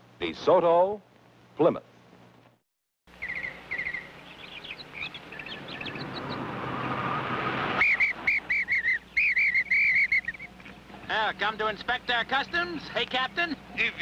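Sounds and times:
high warbling chirps: 3.1s - 10.7s
car approaching: 4.3s - 8.6s.

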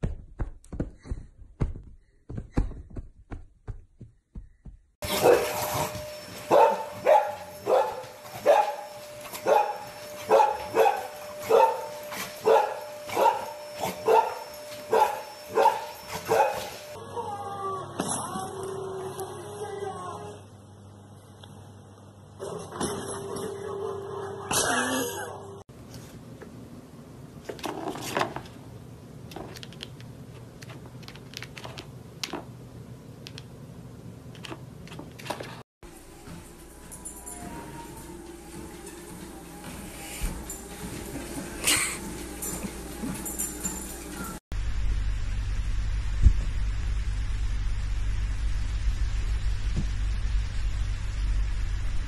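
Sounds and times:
dog barking: 5.1s - 5.5s, 6.5s - 16.7s.

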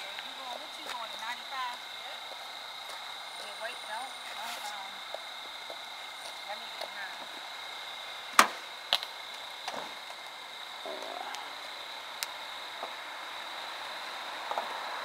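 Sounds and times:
faint voices: 10.8s - 11.7s.

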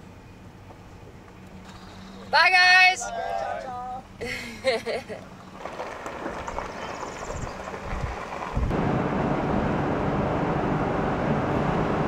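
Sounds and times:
road and wind noise in truck cab: 0.0s - 12.0s.

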